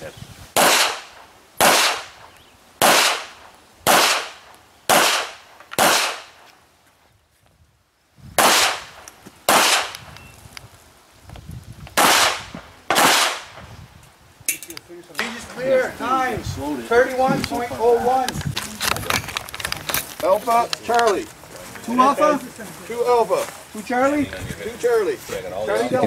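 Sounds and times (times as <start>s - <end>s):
handgun shots: 0.6s - 2.1s, 2.8s - 3.3s, 3.9s - 6.3s, 9.5s - 10.0s, 12.0s - 13.5s.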